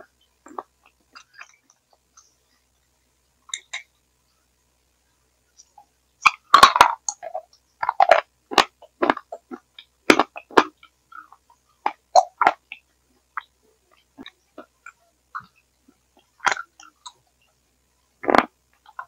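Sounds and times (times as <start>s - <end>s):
wet chewing and smacking: 13.4s - 17.2s.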